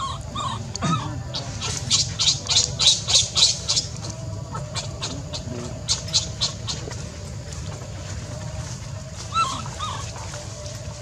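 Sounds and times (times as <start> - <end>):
harsh high-pitched animal calls: 0.0 - 6.8, 9.3 - 10.2.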